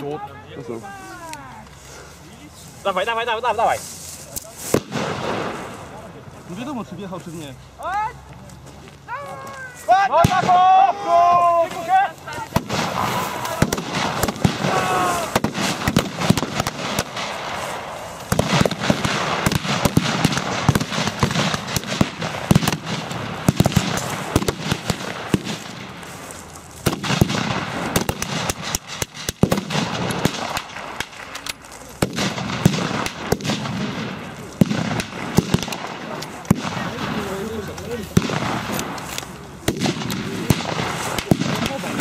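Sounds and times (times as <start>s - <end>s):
gunshots and bursts: 12.6s - 25.8s, 26.8s - 31.4s, 32.0s - 37.2s, 38.1s - 42.0s.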